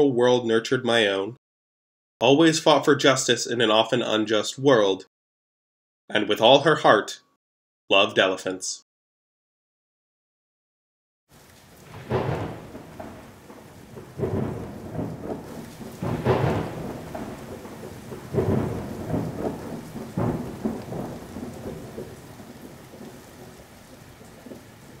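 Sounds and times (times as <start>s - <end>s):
steady rain-like hiss: 11.3s - 25.0s
deep rumbles: 11.8s - 23.6s.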